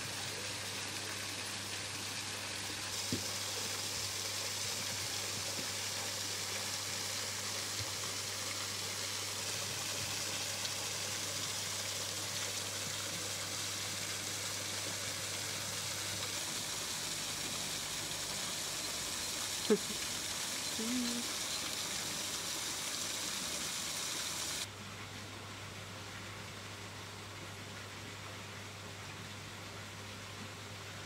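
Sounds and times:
water running: 0:02.6 - 0:24.7.

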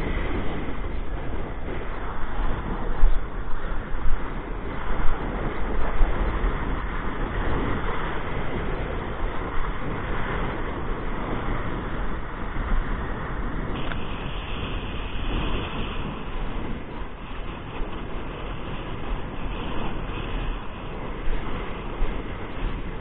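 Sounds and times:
spray hissing over choppy water: 0:00.0 - 0:23.0
wind buffeting microphone: 0:00.0 - 0:23.0.

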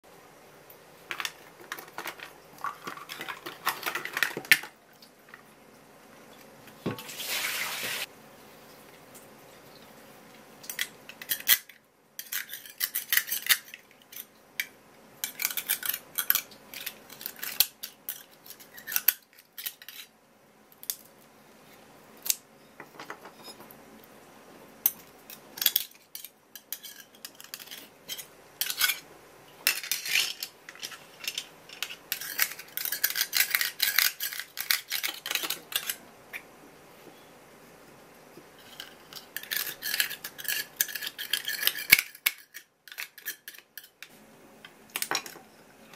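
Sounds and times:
knife clicking and scraping shells: 0:10.7 - 0:20.1, 0:24.8 - 0:36.0, 0:38.6 - 0:44.1.

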